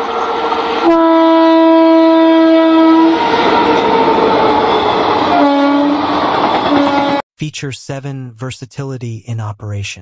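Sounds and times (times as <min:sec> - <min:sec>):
train horn blast: 0:00.0 - 0:07.2
train coaches clickety-clack: 0:03.2 - 0:07.2.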